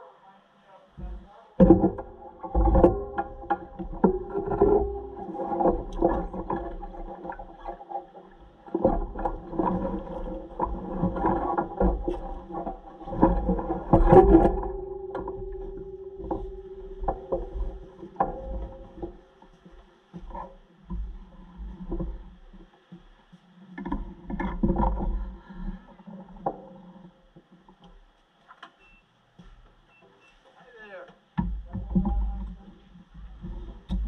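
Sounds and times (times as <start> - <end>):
knocks and rattles: 1.0 - 22.4.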